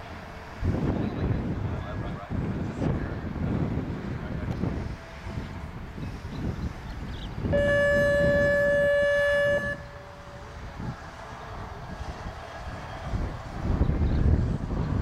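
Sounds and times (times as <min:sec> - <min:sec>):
wind rumble on microphone: 0:00.0 - 0:15.0
horn buzzer steady tone: 0:07.5 - 0:10.3.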